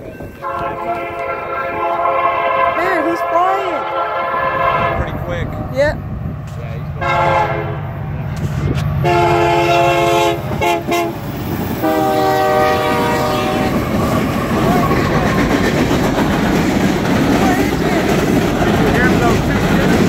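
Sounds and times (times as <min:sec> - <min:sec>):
train rumble and wheel clatter: 0:00.0 - 0:20.0
locomotive air horn: 0:00.4 - 0:05.2, 0:07.0 - 0:07.8, 0:09.0 - 0:11.2, 0:11.8 - 0:13.8.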